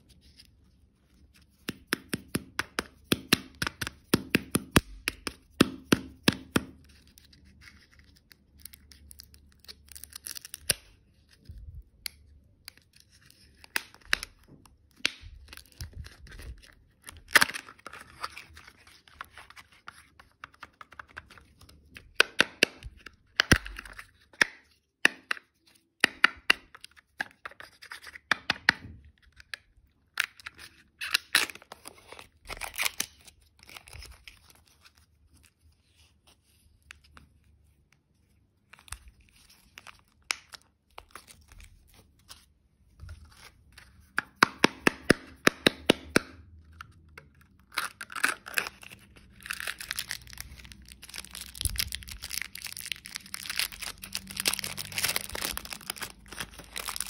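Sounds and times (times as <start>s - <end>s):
wrapper crinkling and tearing: 7.0s - 11.5s, 12.6s - 21.7s, 30.2s - 35.6s, 47.4s - 57.0s.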